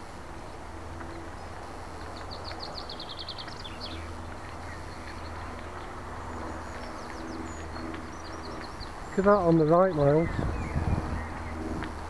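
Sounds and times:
bicycle riding noise: 0.0 - 12.0
songbird chirping: 0.4 - 12.0
wind on microphone: 9.7 - 12.0.

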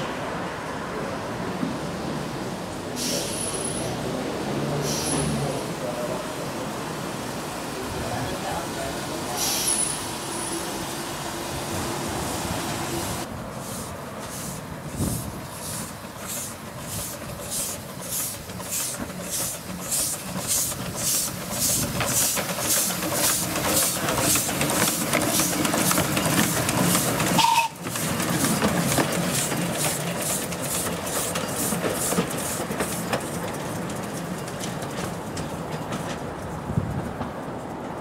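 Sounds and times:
steam locomotive chuffing: 2.8 - 37.2
steam hiss: 2.9 - 33.1.

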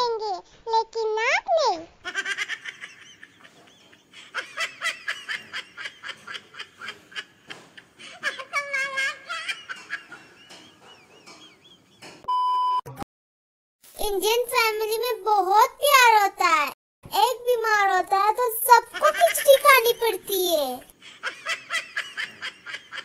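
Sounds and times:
laughter in bursts: 2.0 - 12.1, 21.0 - 23.0
short steady beep: 12.3 - 13.0.

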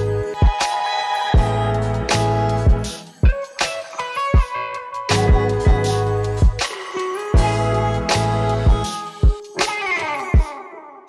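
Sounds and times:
low bass line: 1.4 - 2.9, 5.2 - 6.6, 7.4 - 8.9
drum beat: 2.7 - 7.8, 8.6 - 10.6.

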